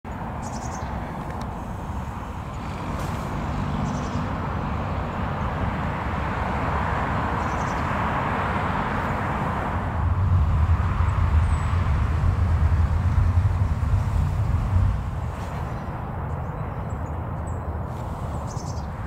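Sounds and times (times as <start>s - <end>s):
distant city traffic hum: 0.0s - 19.0s
high-pitched bird calls: 0.4s - 1.0s.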